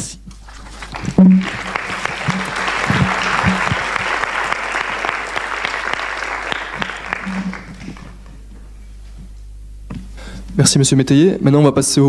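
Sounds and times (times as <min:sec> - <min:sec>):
audience applause: 0:00.5 - 0:08.4.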